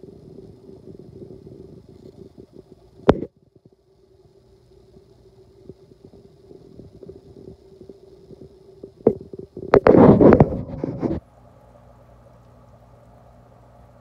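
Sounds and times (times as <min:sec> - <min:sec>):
low hum: 0:00.0 - 0:14.0
loud rumbling rub: 0:09.5 - 0:11.2.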